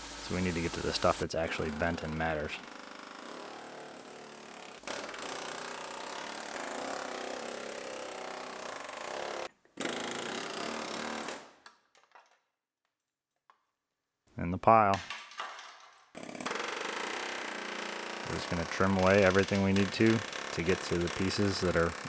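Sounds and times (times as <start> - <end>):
air chisel hammering sheet metal: 16.9 - 22.0.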